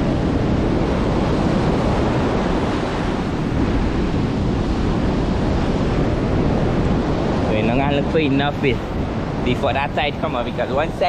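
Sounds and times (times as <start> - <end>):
ocean surf on beach: 0.0 - 11.0
wind buffeting microphone: 0.0 - 11.0.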